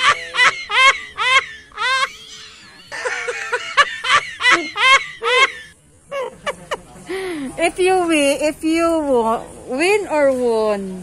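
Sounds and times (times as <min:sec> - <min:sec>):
high-pitched giggling: 0:00.0 - 0:06.4.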